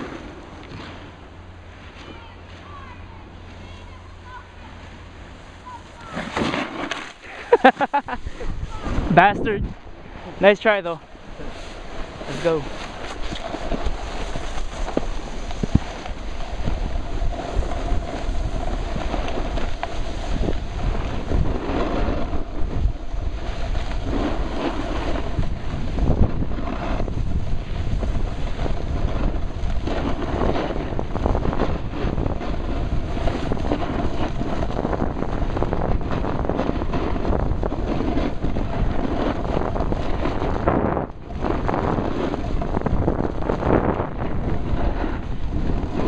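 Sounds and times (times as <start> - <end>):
snowboard scraping on snow: 0.0 - 46.0
wind buffeting microphone: 7.2 - 46.0.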